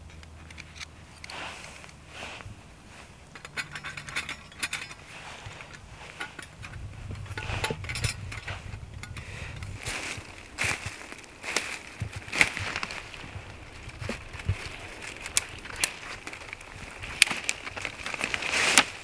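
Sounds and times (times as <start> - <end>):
dry leaves rustling: 0.0 - 19.0
steel plates clicking and clinking: 3.2 - 9.9.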